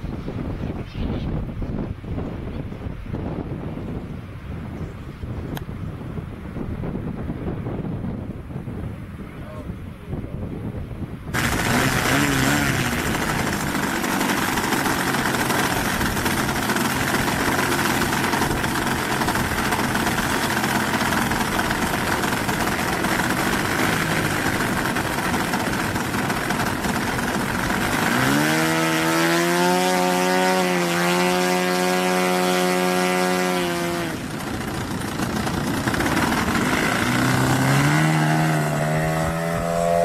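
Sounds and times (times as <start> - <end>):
model airplane engine running: 11.4 - 40.0.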